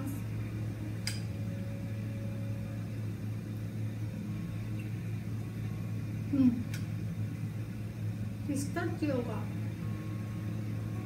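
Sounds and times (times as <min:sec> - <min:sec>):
low room hum: 0:00.0 - 0:11.0.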